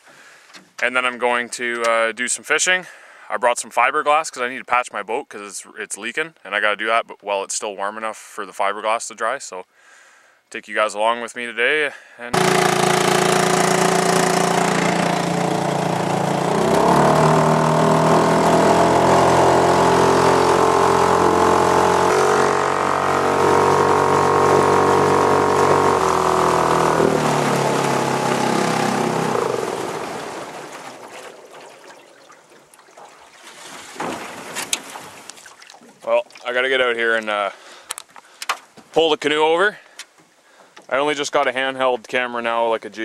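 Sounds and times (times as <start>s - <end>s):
small outboard motor running: 12.4s - 33.0s.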